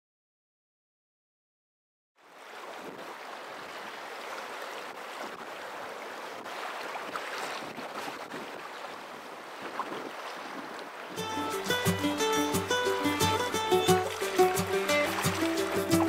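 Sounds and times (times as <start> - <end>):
water rushing: 2.2 - 16.0
faint splashes and ticks: 2.3 - 11.2, 12.7 - 16.0.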